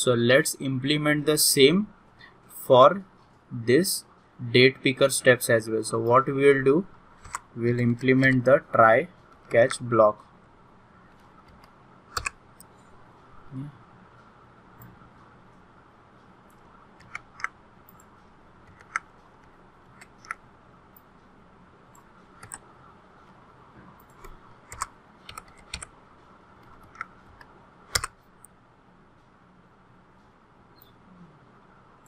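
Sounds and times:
faint steady hiss: 0.0 - 32.0
keyboard keystrokes: 11.2 - 12.7, 17.0 - 20.4, 22.4 - 22.6, 24.0 - 25.9, 26.6 - 28.2.

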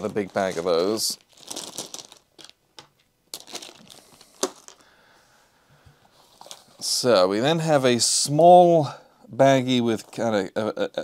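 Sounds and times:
plastic bag crinkling: 0.0 - 4.9.

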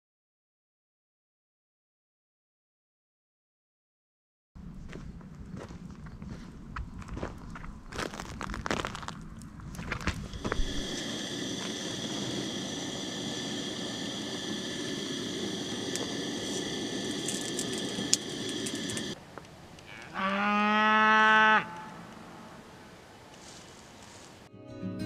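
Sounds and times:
stove burner hissing: 9.9 - 19.2
cow mooing: 19.8 - 22.6.

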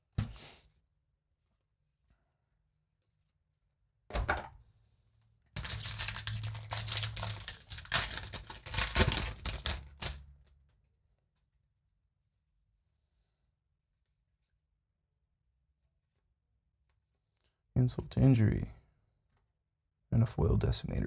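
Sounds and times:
foil wrapper tearing and crinkling: 5.6 - 10.2.

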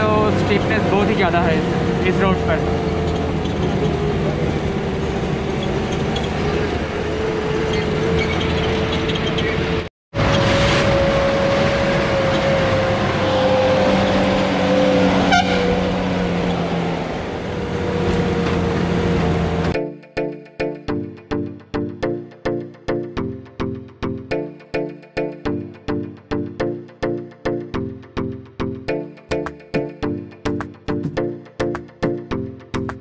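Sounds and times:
bus engine and road noise: 0.0 - 19.8.

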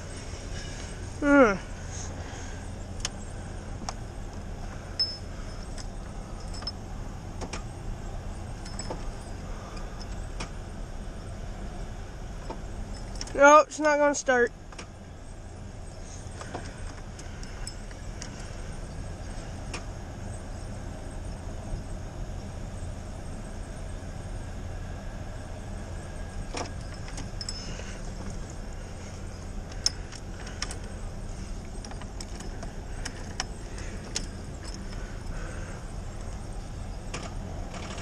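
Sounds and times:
steady low rumble: 0.0 - 38.0
keys jingling: 31.7 - 35.3.

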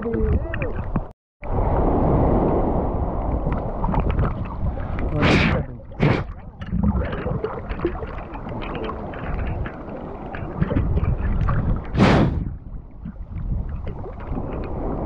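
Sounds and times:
wind buffeting microphone: 0.0 - 15.0
rushing splash: 1.4 - 12.7
seawater sloshing and splashing: 3.1 - 15.0.

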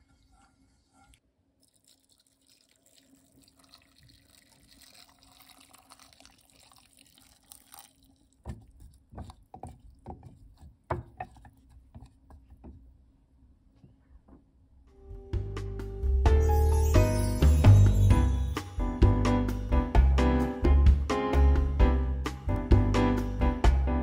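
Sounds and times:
liquid pouring into a glass jar: 1.6 - 9.8.

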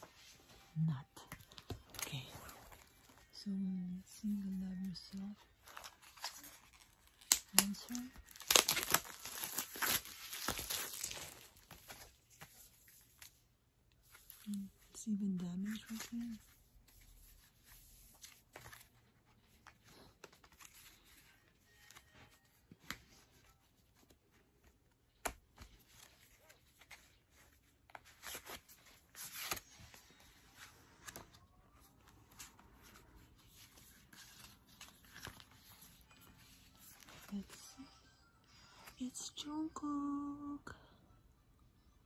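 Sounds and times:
paper rustling: 4.3 - 14.9, 15.6 - 37.7
page flips: 15.9 - 37.5.

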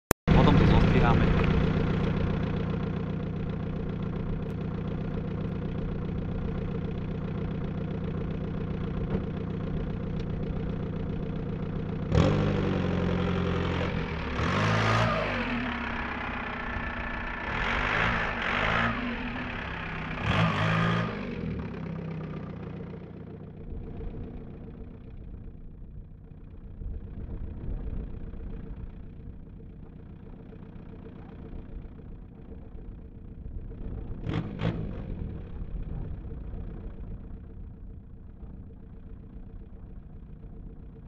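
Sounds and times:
diesel engine idling and revving: 0.3 - 41.0.

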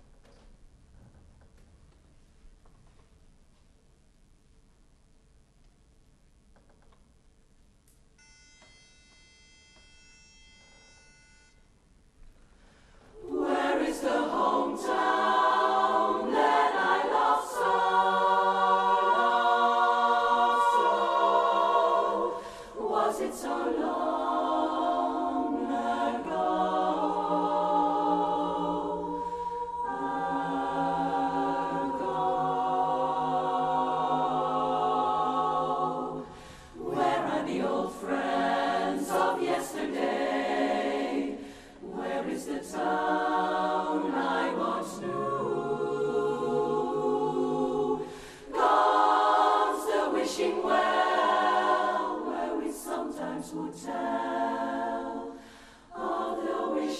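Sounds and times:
women's chorus singing a cappella: 13.1 - 56.9.

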